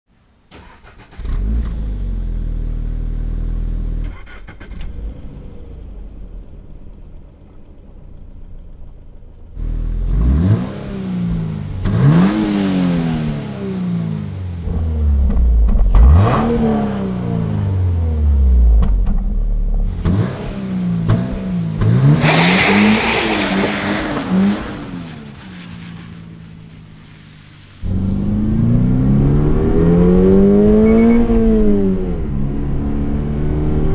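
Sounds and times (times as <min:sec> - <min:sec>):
car engine revving and idling: 0:00.6 - 0:33.9
car accelerating away: 0:09.6 - 0:18.9, 0:19.9 - 0:26.7, 0:27.8 - 0:33.9.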